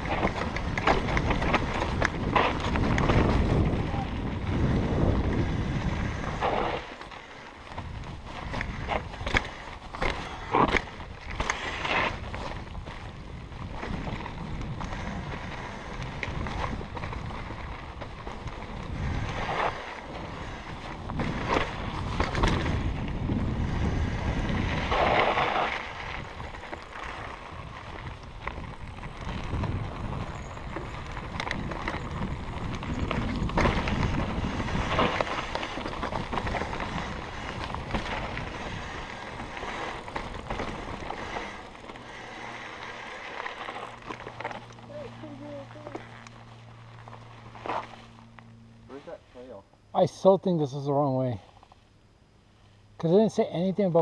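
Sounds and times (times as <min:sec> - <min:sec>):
wind rushing over microphone: 0:00.0 - 0:06.9, 0:11.8 - 0:42.0
bike rattling: 0:00.0 - 0:51.9
bike tyres rolling on dirt: 0:00.0 - 0:54.0.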